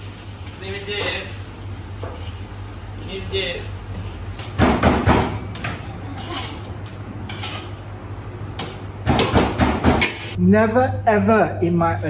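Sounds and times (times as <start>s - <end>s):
metal spatula scraping wok: 6.0s - 7.8s.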